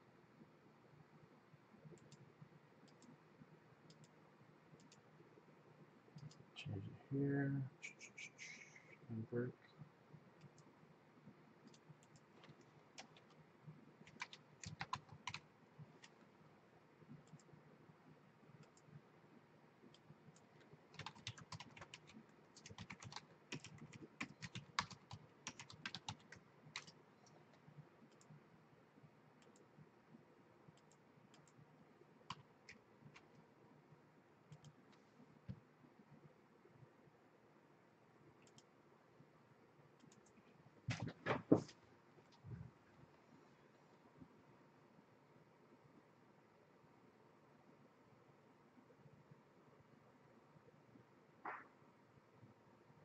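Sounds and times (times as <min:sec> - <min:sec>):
typing on a computer keyboard: 0:01.9 - 0:03.2, 0:11.6 - 0:13.4, 0:14.0 - 0:16.2, 0:19.9 - 0:27.4.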